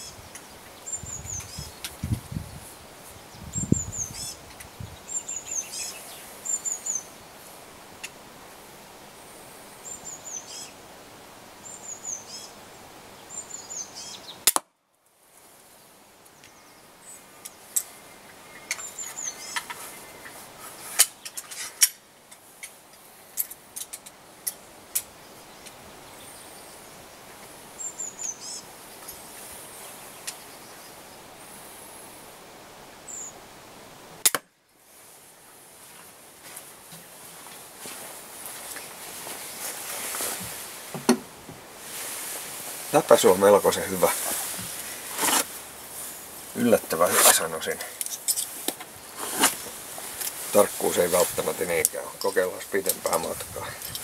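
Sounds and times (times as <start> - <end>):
small birds chirping: 0.0 - 8.2, 9.0 - 10.8, 11.6 - 14.5, 15.4 - 31.9, 33.0 - 33.4, 41.8 - 54.0
crossbow firing crack: 14.4 - 14.7, 34.2 - 34.5.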